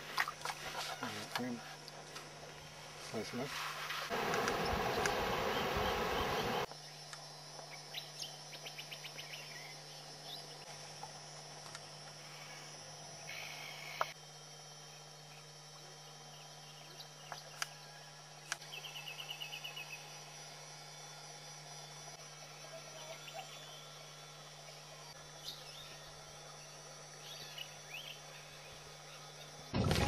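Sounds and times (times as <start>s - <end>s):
insects: 0.0s - 30.0s
steady low hum: 0.0s - 30.0s
bird calls: 4.2s - 6.7s.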